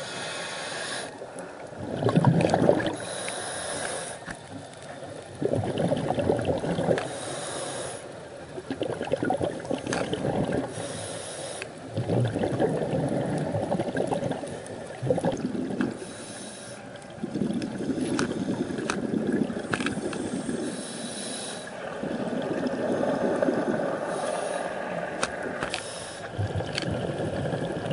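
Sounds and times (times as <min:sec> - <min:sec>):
regulator hiss on inhale: 0:00.0 - 0:01.4, 0:02.9 - 0:05.0, 0:07.0 - 0:08.4, 0:09.8 - 0:11.9, 0:15.9 - 0:17.1, 0:18.0 - 0:19.0, 0:19.8 - 0:22.0, 0:22.9 - 0:26.4
rumbling exhaust bubbles underwater: 0:01.1 - 0:07.5, 0:08.3 - 0:11.0, 0:11.8 - 0:16.2, 0:16.8 - 0:27.9.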